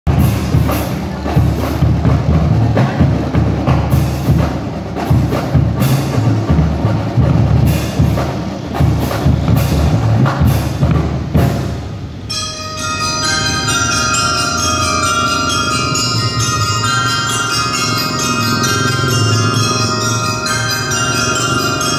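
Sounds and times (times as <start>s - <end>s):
drums beating: 0.1s - 21.9s
bell lyres melody: 12.3s - 21.9s.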